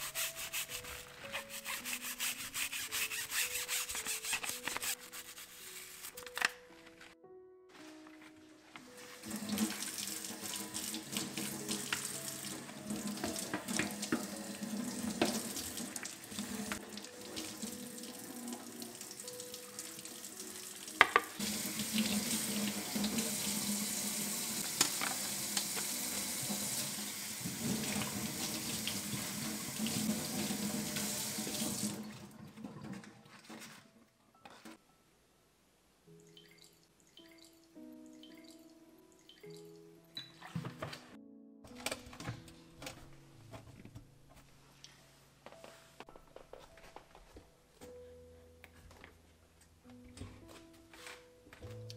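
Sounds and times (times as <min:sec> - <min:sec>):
faucet running into steel sink: 0:09.2 - 0:19.3, 0:19.9 - 0:32.3.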